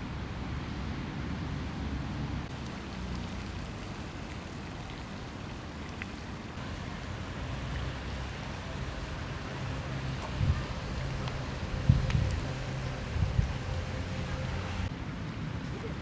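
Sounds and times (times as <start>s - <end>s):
steady hiss: 2.4s - 15.9s
wind buffeting microphone: 10.0s - 14.9s.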